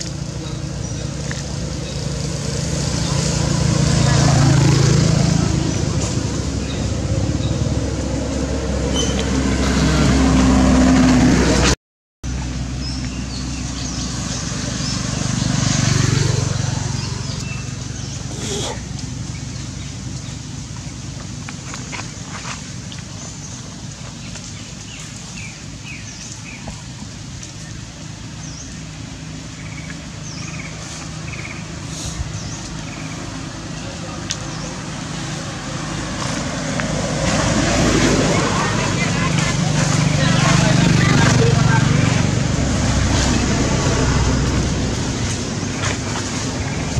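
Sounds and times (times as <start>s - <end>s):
vehicle engine passing: 0.0s - 26.6s, 27.7s - 46.9s
engine idling: 38.2s - 46.9s.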